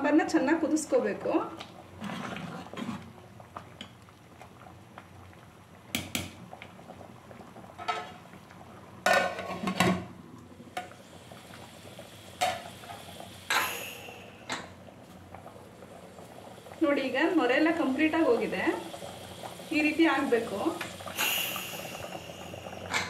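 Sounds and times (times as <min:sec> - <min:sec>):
pot bubbling at a boil: 0:00.0 - 0:23.0.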